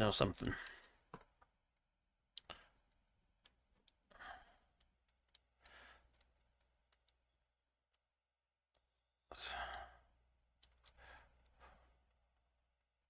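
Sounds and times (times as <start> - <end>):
soft breaths: 0.4 - 1.1, 3.8 - 6.8, 9.3 - 12.6.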